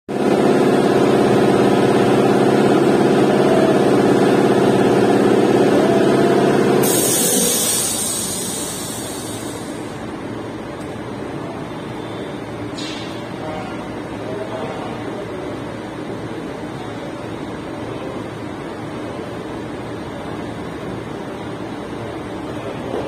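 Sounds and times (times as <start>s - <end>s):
engine running: 0.1s - 23.0s
high hiss: 6.8s - 9.9s.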